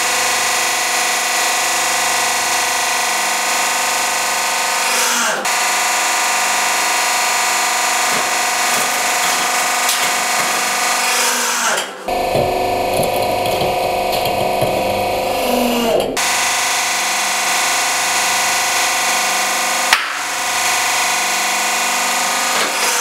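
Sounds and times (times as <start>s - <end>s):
hydraulic pump motor whine: 0.0s - 23.0s
press crushing with crackles: 8.0s - 11.0s, 12.1s - 15.2s.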